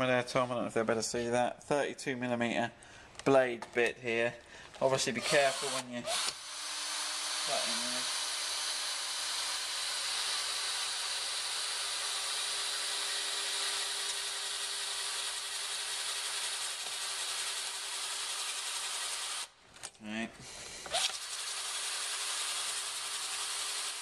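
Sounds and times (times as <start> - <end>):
drill motor hum: 5.2 - 19.5, 20.8 - 24.0
drill boring through plastic: 5.2 - 19.6, 20.8 - 24.0.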